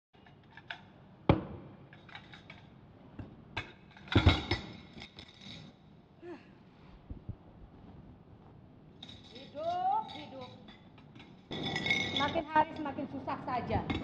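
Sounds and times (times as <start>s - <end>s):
plates clinking and clattering: 9.0s - 12.9s.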